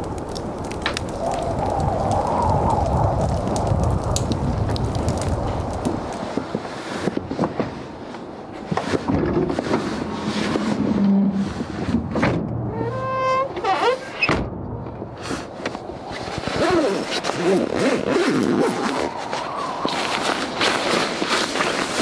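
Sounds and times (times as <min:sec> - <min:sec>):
sleeping bag rustling: 0:16.1 - 0:22.0.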